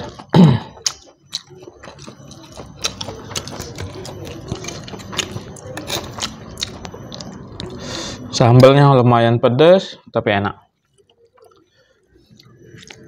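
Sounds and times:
chewing crunches: 0.0 - 7.9, 10.8 - 13.0.

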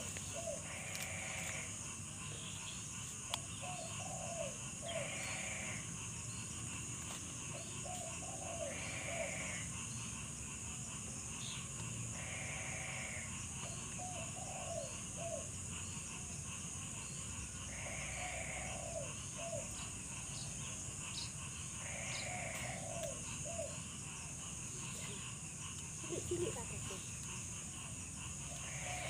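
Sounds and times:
insects droning: 0.0 - 29.0
buzzy animal call: 26.0 - 29.0.

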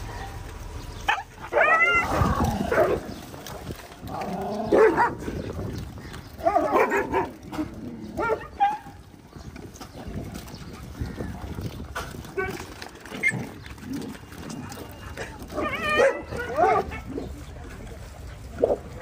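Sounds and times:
dogs whining and yelping: 1.0 - 3.6, 4.7 - 9.1, 12.1 - 17.4.

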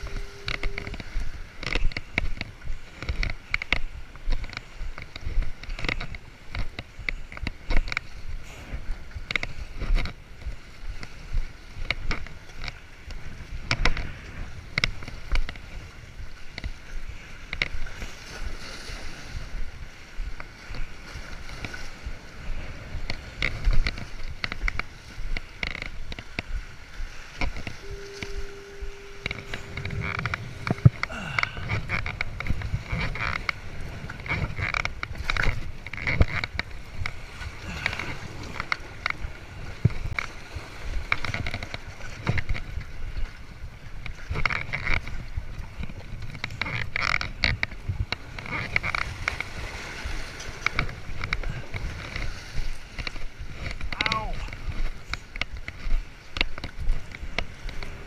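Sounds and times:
steady tone: 0.0 - 1.8, 27.7 - 32.2
waves splashing against rocks: 0.0 - 58.0
wind rumbling on microphone: 0.0 - 58.0.

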